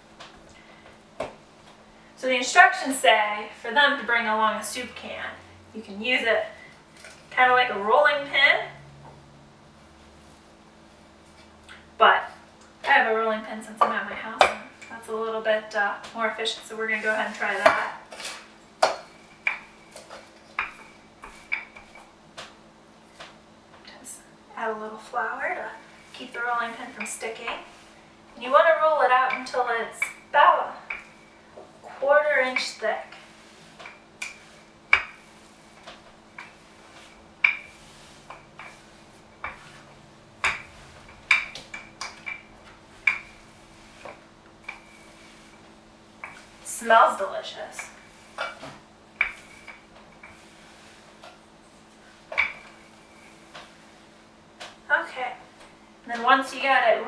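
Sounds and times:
rolling pin clicking on dough: 32.5 - 45.6, 47.8 - 51.4
kitchen items knocking and clinking: 40.4 - 43.4.

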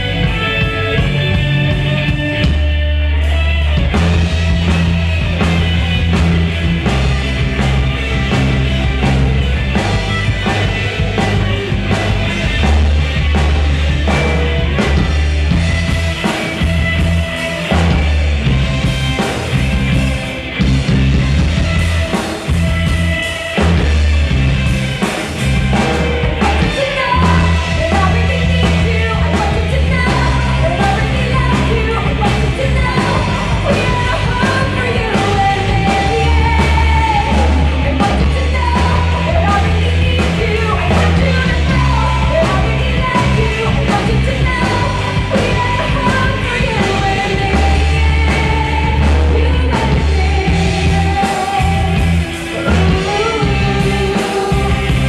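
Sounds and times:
live rock band playing: 0.0 - 55.0
person singing: 25.7 - 55.0.

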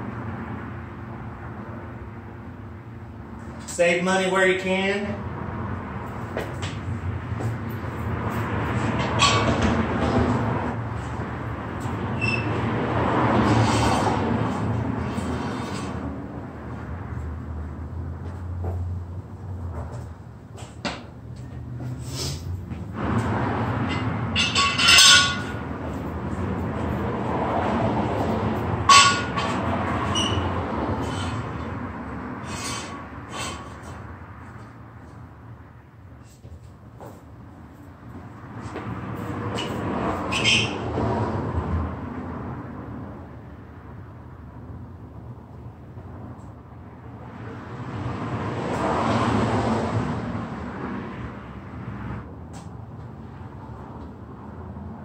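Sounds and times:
vehicle passing by: 0.0 - 55.0
metal equipment clanking: 9.0 - 10.2, 23.8 - 25.7, 28.9 - 31.4.

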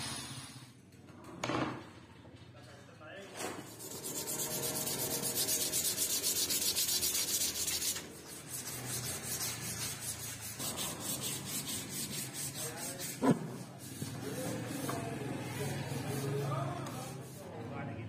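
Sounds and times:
sandpaper rubbing wooden handle: 3.7 - 17.6.

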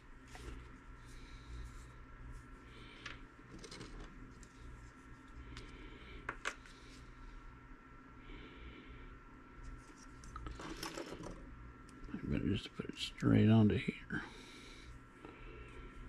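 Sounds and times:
faint steady hum: 0.0 - 16.0
rustles and clicks of small parts: 2.9 - 7.0, 9.6 - 12.2.

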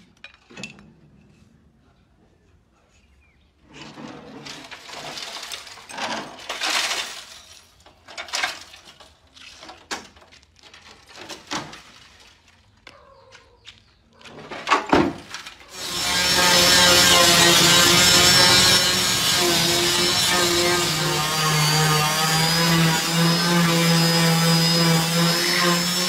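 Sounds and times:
rasping metal scrape: 3.6 - 6.8, 15.6 - 26.0.

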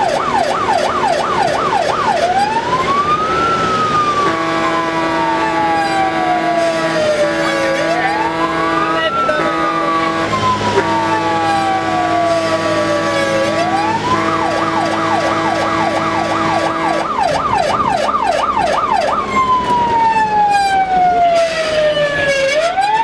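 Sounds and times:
fire engine siren wailing and yelping: 0.0 - 23.0.

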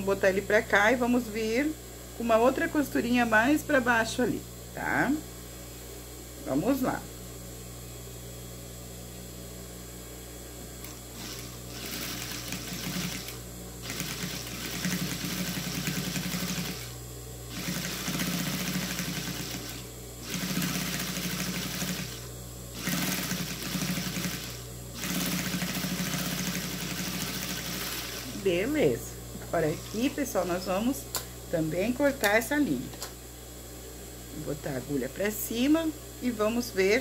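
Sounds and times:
low steady hum: 0.0 - 37.0
sewing machine stitching: 11.2 - 22.2, 22.8 - 28.4.

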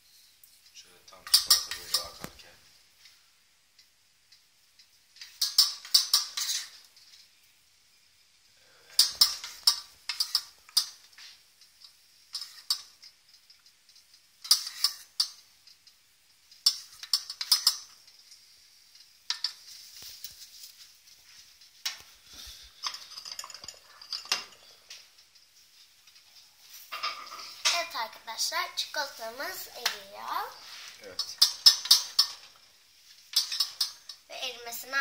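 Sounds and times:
metal spoon scraping pot: 5.2 - 7.1, 9.0 - 11.0, 12.3 - 13.0, 14.4 - 15.4, 30.5 - 32.6, 33.3 - 34.2.

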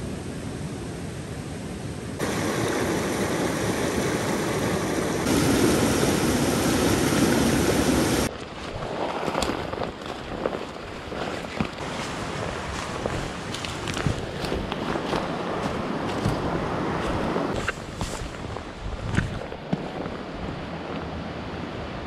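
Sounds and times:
water rushing over rocks: 2.2 - 8.3
leaves crackling: 2.2 - 20.2
footsteps on dry leaves: 8.4 - 20.2.

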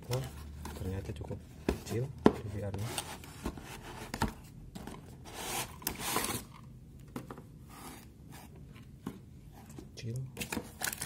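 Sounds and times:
cardboard scraping and rustling: 0.1 - 6.6.

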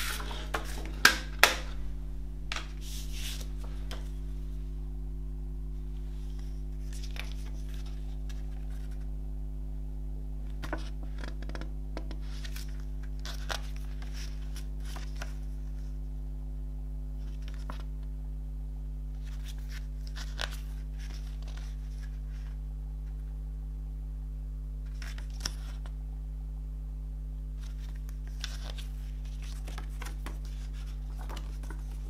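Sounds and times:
paper booklet rustling: 0.0 - 4.8, 5.8 - 9.1, 10.5 - 15.9, 17.2 - 17.9, 19.2 - 23.2, 27.6 - 32.0
low electrical hum: 0.0 - 32.0.

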